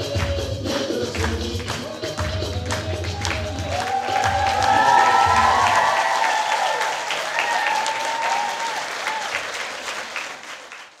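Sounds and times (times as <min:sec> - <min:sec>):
audience applauding: 0:00.2 - 0:11.0
people cheering: 0:02.8 - 0:11.0.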